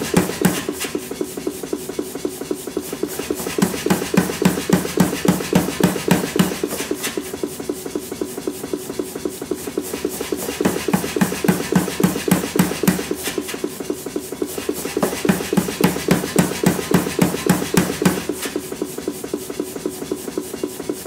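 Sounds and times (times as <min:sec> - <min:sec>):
power hammer striking hot steel: 0:00.0 - 0:01.0, 0:03.0 - 0:07.2, 0:10.4 - 0:13.6, 0:14.7 - 0:18.6.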